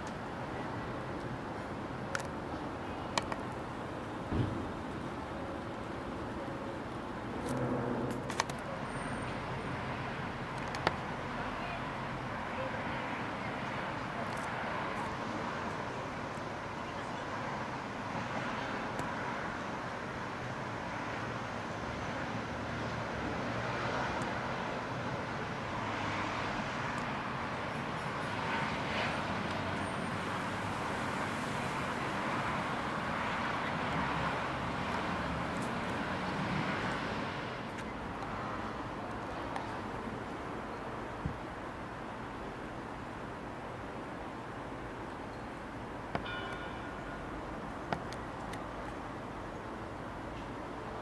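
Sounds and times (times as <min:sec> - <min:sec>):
distant road traffic hum: 0:00.0 - 0:51.0.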